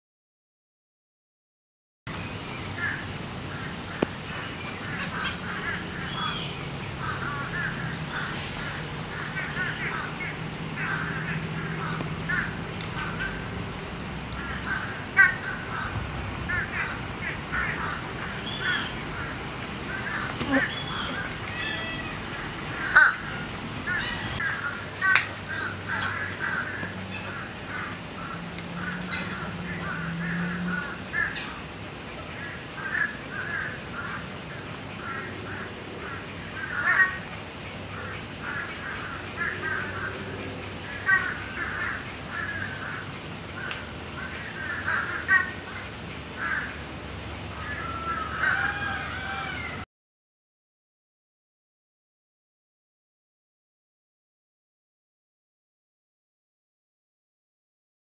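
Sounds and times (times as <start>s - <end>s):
chorus of bird calls: 2.2s - 46.8s, 47.4s - 49.8s
loud sharp bird calls: 2.6s - 13.5s, 14.2s - 31.6s.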